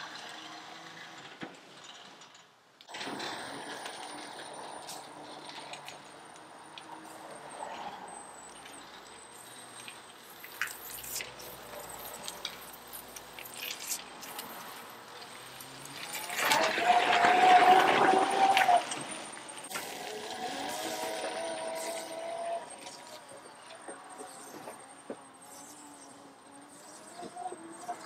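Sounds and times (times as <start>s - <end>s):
loose parts clicking and rattling: 1.0s - 20.0s
electric motor high whine: 2.9s - 28.0s.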